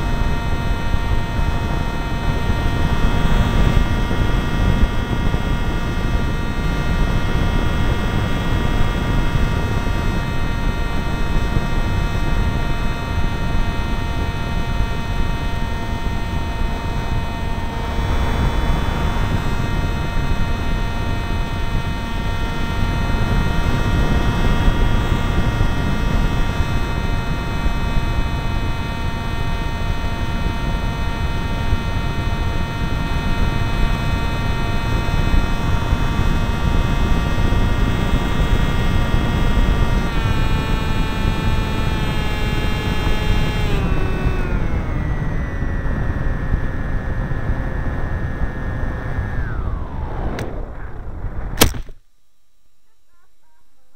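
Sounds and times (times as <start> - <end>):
rushing wind: 0.0 - 41.4, 43.5 - 52.0
model aircraft motor whine: 0.0 - 51.7.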